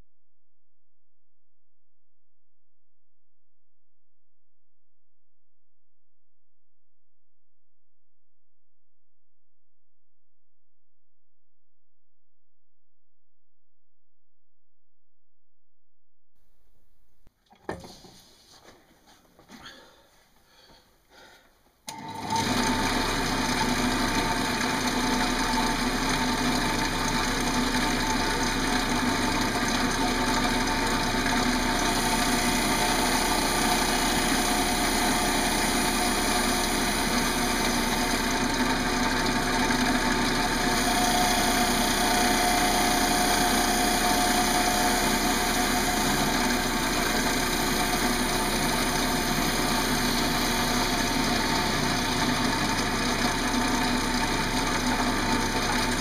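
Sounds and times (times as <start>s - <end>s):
wood lathe running: 21.9s - 56.0s.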